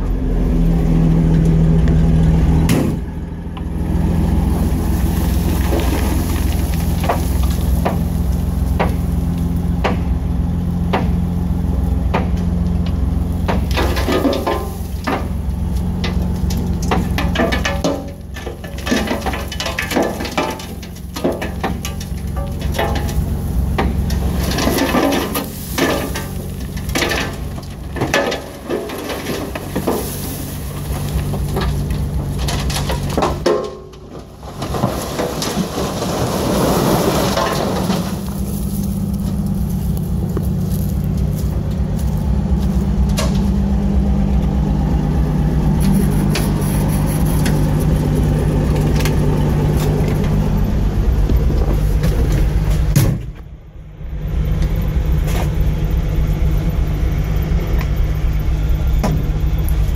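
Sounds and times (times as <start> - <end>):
truck engine running: 0.0 - 59.9
dirt sliding out: 0.4 - 9.8, 10.4 - 53.5
knocks and clatter: 12.0 - 36.2.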